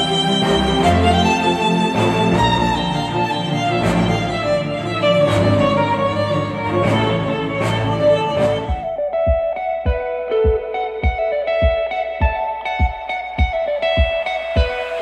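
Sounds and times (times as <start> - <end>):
violin and strings music: 0.0 - 15.0
percussive beat: 6.8 - 15.0.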